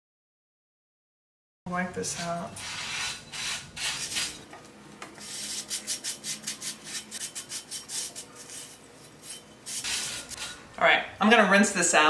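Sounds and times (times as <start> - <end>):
towel rubbing salt in skillet: 5.2 - 10.5.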